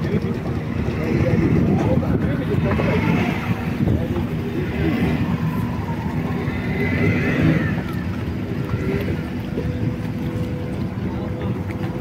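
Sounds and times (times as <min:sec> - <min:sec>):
motorboat engine drone: 0:00.0 - 0:12.0
water rushing: 0:00.0 - 0:12.0.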